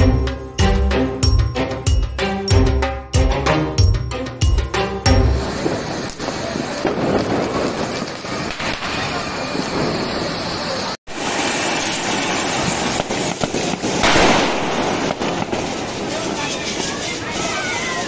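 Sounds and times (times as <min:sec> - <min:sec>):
firework fountains crackling hiss: 0:05.2 - 0:18.0.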